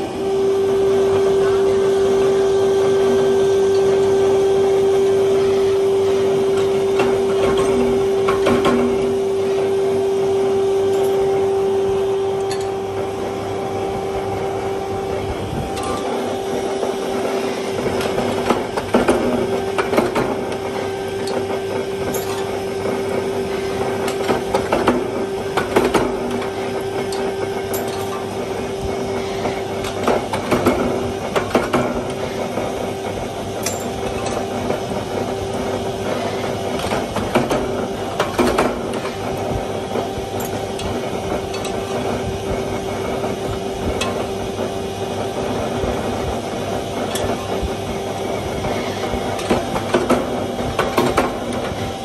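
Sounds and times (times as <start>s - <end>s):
hydraulic press humming: 0.0s - 52.0s
metal clanks and knocks: 6.2s - 9.8s, 12.4s - 13.2s, 15.6s - 44.8s, 45.4s - 52.0s.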